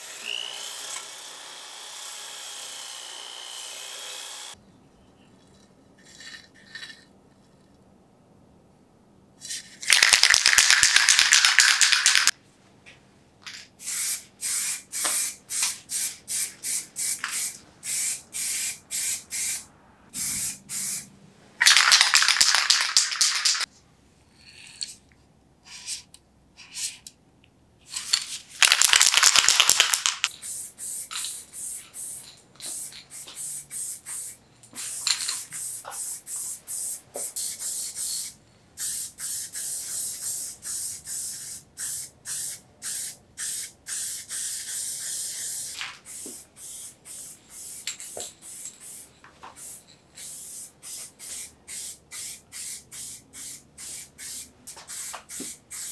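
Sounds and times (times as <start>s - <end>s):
spray paint can hissing: 9.4s - 12.4s, 13.8s - 23.7s, 28.0s - 55.9s.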